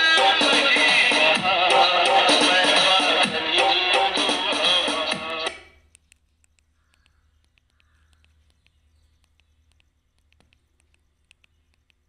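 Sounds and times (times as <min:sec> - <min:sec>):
faint low hum: 0:05.5 - 0:12.0
faint ticks: 0:05.8 - 0:12.0.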